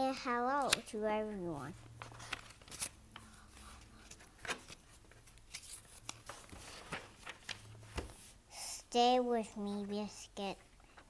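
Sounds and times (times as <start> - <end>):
book pages turning: 0.1 - 1.0, 1.8 - 8.4.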